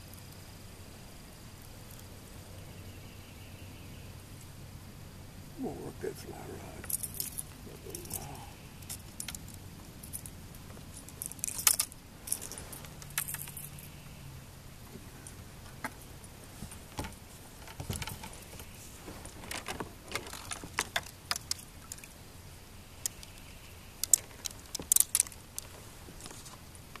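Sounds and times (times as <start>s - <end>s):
fishing tackle clicking and rattling: 6.7s - 10.4s, 11.0s - 13.8s, 19.4s - 22.1s, 24.0s - 25.7s.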